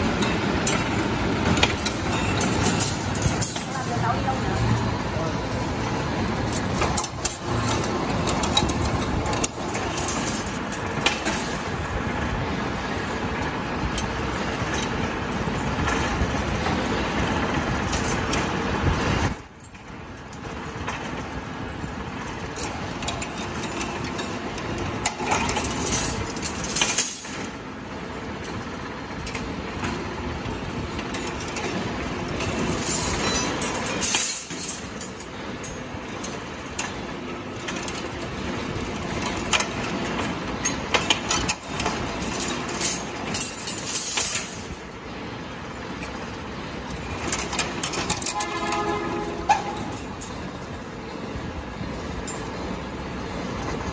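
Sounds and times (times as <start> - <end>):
steel wire rattling and scraping: 0.0 - 12.2, 22.4 - 44.8, 45.8 - 50.7.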